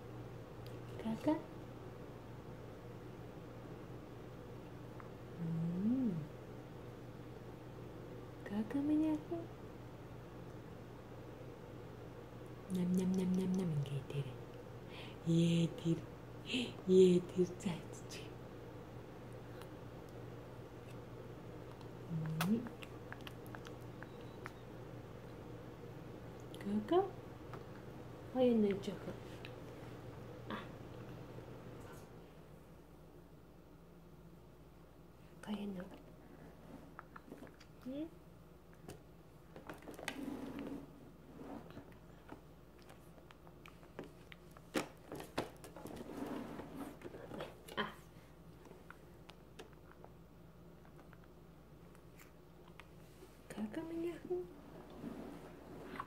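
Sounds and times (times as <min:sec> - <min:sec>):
baby sucking and smacking: 0:21.6 - 0:24.6.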